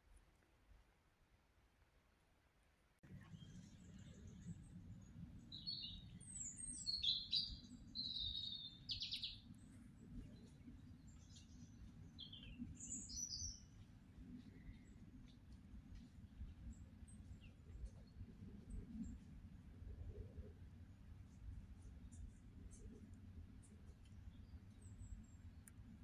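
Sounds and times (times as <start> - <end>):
songbird chirps and trill: 3.2 - 19.3.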